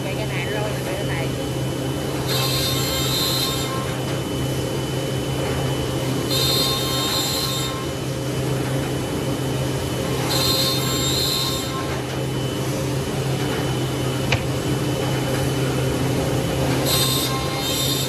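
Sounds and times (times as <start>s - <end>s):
machine hum: 0.0s - 18.0s
router cutting hiss: 2.2s - 4.4s, 6.1s - 8.0s, 10.0s - 12.1s, 16.7s - 18.0s.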